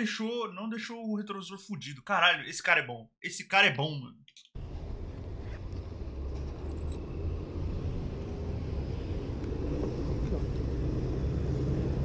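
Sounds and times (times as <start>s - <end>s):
road traffic rumble: 4.6s - 12.0s.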